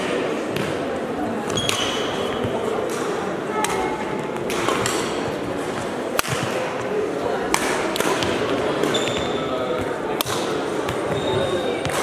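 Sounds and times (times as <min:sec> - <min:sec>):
murmur of voices echoing: 0:00.0 - 0:12.0
shoe squeaks: 0:01.5 - 0:02.5, 0:08.8 - 0:09.5, 0:11.0 - 0:11.8
racket hitting shuttlecock: 0:01.5 - 0:11.2.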